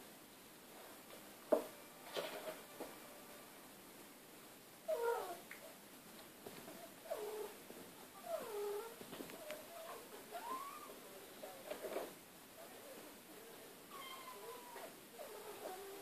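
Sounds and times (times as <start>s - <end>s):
cat meowing: 13.9s - 16.0s.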